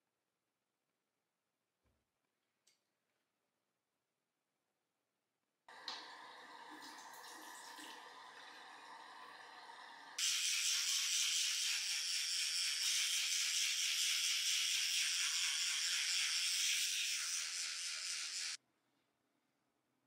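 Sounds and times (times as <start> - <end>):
faint sink sounds: 5.7 - 10.2
toothbrush scrubbing teeth: 10.2 - 18.6.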